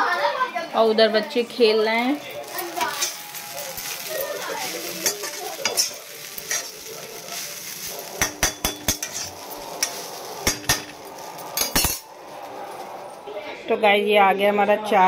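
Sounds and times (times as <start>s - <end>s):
food sizzling in a pan: 1.0s - 13.2s
metal spoon scraping a pan: 2.8s - 4.0s, 4.8s - 12.2s.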